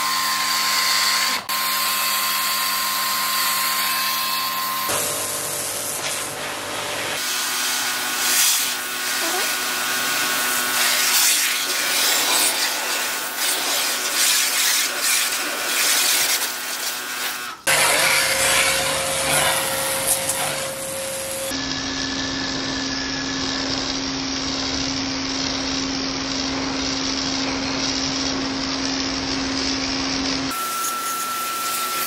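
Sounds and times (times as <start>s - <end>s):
pressure washer spraying water: 4.9s - 21.6s, 30.5s - 32.0s.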